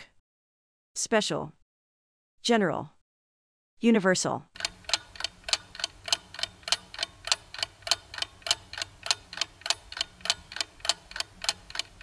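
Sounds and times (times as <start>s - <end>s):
clock ticking: 4.6s - 12.0s.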